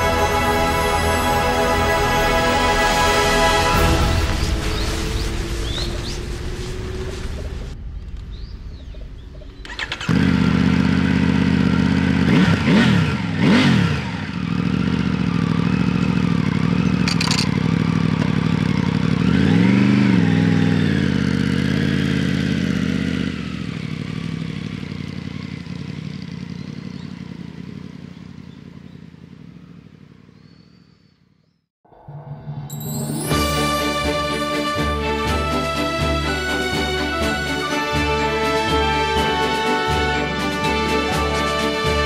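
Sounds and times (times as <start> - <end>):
motorcycle engine idling and revving: 2.9 - 31.7.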